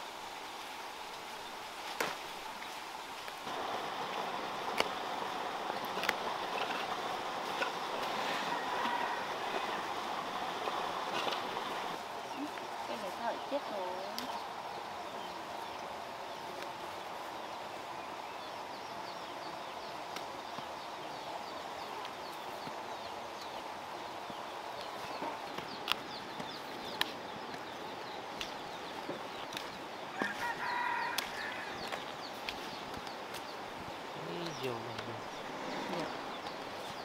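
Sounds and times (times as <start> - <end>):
loud chicken call: 30.1 - 31.8.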